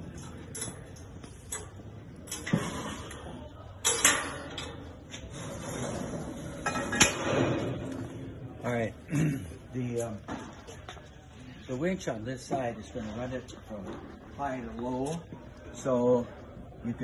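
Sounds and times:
metallic clanks: 0:03.8 - 0:05.0
metal scrape: 0:05.2 - 0:07.8.

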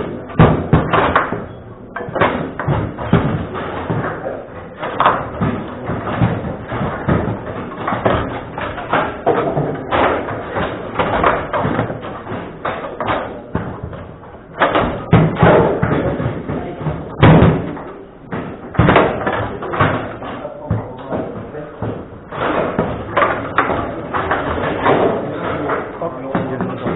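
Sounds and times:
table football ball knocks: 0:00.0 - 0:26.9.

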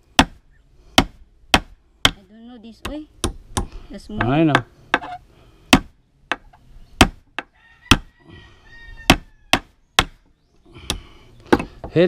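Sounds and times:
hammer striking nail into wood: 0:01.0 - 0:02.2, 0:05.7 - 0:08.1.

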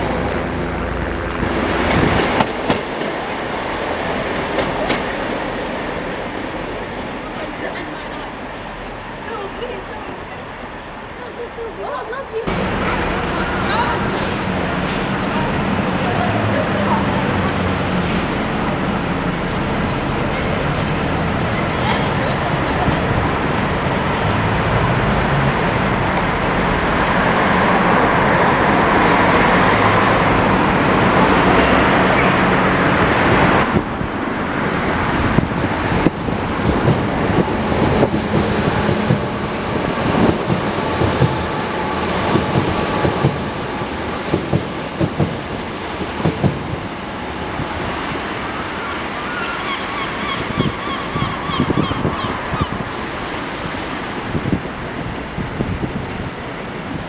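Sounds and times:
wind noise on microphone: 0:00.0 - 0:02.8, 0:32.4 - 0:41.5, 0:50.4 - 0:57.0.

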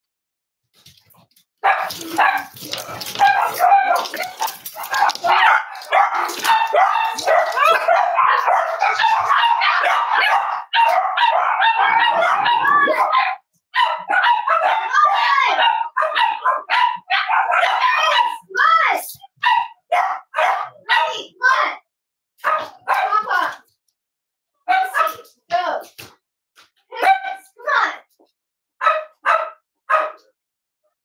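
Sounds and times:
dogs barking and yipping: 0:01.1 - 0:21.3, 0:22.4 - 0:23.6, 0:24.7 - 0:25.3, 0:28.8 - 0:30.3.

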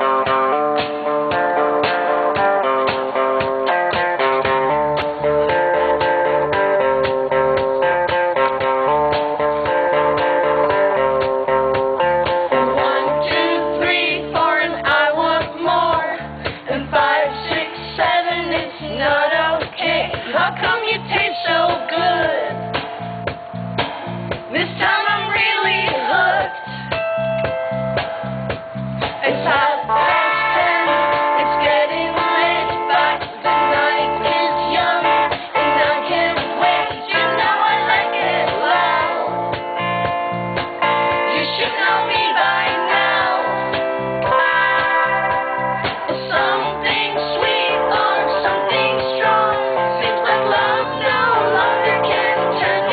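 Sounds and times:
drum and bass beat: 0:00.0 - 0:16.7, 0:19.6 - 0:26.2, 0:26.9 - 0:52.9
electric guitar: 0:00.0 - 0:52.9
keyboard: 0:00.0 - 0:52.9
woman singing: 0:12.6 - 0:22.7, 0:24.5 - 0:26.7, 0:29.2 - 0:39.3, 0:41.3 - 0:45.3, 0:46.1 - 0:52.9
steady drum beat: 0:19.7 - 0:26.2, 0:26.9 - 0:29.7.

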